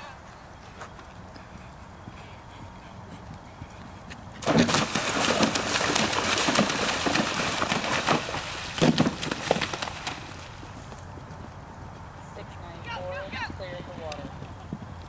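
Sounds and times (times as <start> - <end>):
horse hooves splashing through water: 1.1 - 12.2.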